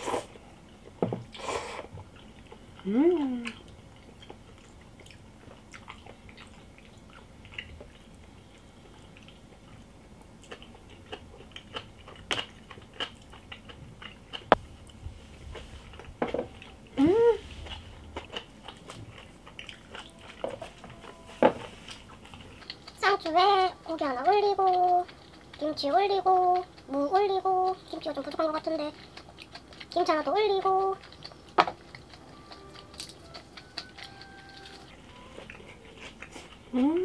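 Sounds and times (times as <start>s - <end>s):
chewing and biting: 0.6s - 16.9s, 17.6s - 37.0s
person humming: 2.8s - 3.6s, 17.0s - 17.5s, 36.7s - 37.0s.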